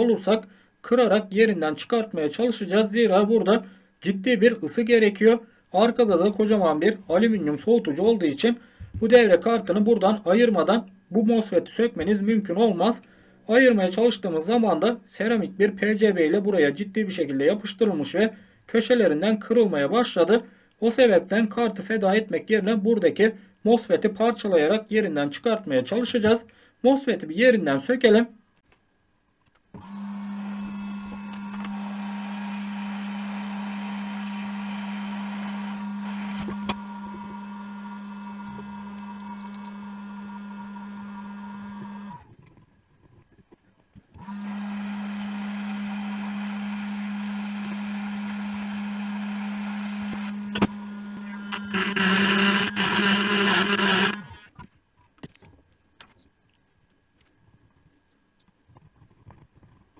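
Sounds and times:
hot-air station motor hum: 29.8 - 42.3, 44.2 - 54.5.

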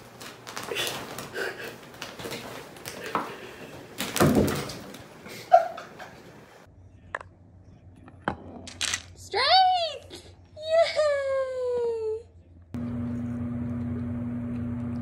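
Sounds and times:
plastic shower curtain rustling: 0.0 - 5.2.

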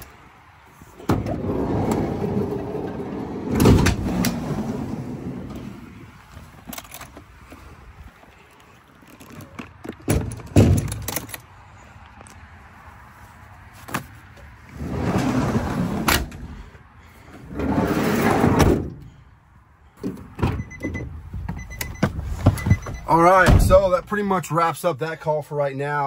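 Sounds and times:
tray rumbling slide: 1.1 - 6.0, 14.7 - 16.7.

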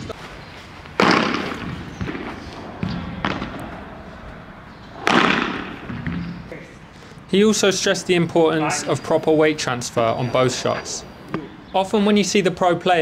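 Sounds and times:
racket striking ball: 1.0 - 6.5.

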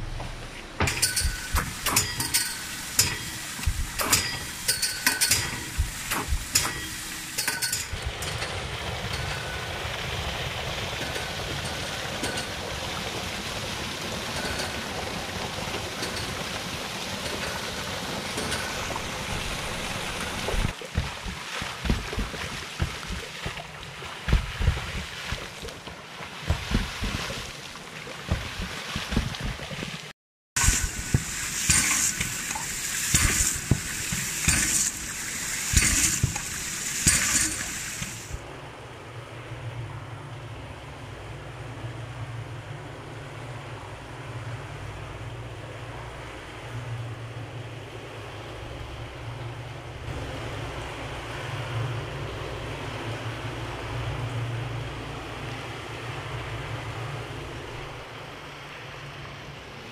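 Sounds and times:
water rushing: 0.0 - 59.9
pump valves clacking shut: 0.8 - 8.5, 30.6 - 38.3
low thumps: 24.3 - 25.5.

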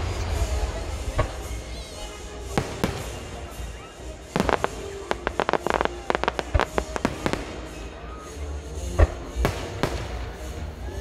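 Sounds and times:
fireworks bangs and pops: 2.4 - 3.7, 4.3 - 8.1, 8.8 - 10.8.

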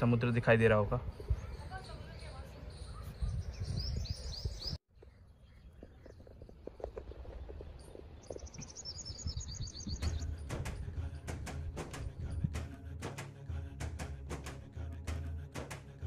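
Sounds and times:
small birds chirping: 1.0 - 11.4
wind rumble on microphone: 1.0 - 12.8.

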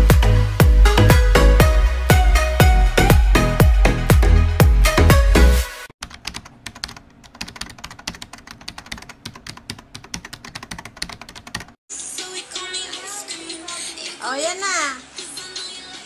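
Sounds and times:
electronic dance music: 0.0 - 5.7, 11.9 - 16.0
computer keyboard typing clicks: 6.0 - 11.8
room background sound: 6.0 - 16.0.

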